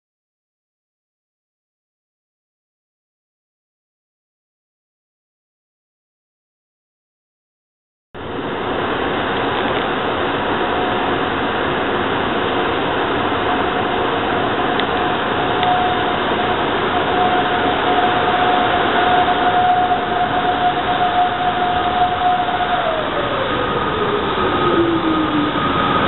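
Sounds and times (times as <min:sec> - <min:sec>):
locomotive high whine: 0:08.2 - 0:26.0
train rushing rumble: 0:08.2 - 0:26.0.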